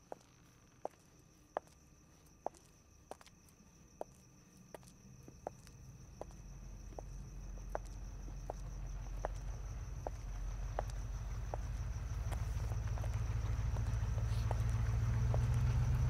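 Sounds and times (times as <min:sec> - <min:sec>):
cricket trill: 0:00.0 - 0:16.0
footsteps on pavement: 0:00.0 - 0:16.0
car engine rumble: 0:06.6 - 0:16.0.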